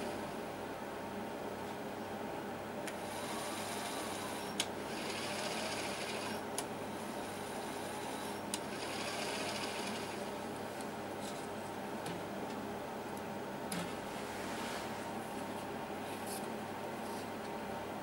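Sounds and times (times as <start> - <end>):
motor spinning with steady whirr: 2.9 - 12.6.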